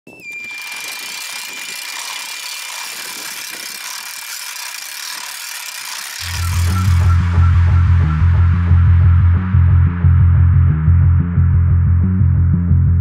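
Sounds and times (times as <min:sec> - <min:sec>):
cordless drill whining: 0:00.2 - 0:07.5
rasp of meshing gear teeth: 0:00.5 - 0:07.0
music with heavy bass beat: 0:06.2 - 0:13.0.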